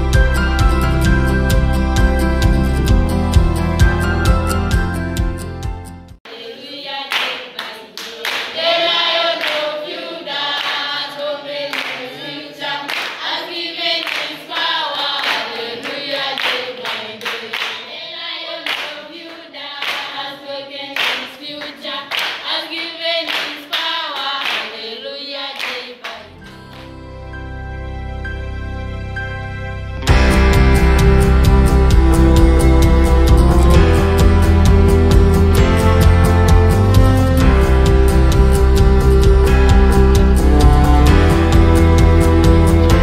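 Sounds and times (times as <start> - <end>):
soft instrumental music: 0.0 - 6.2, 26.3 - 43.0
group singing unaccompanied: 6.2 - 26.3
hand claps: 7.1 - 8.7, 9.3 - 9.7, 10.5 - 10.9, 11.7 - 12.2, 12.9 - 13.4, 14.0 - 17.9, 18.6 - 20.2, 21.0 - 24.8, 25.6 - 26.9.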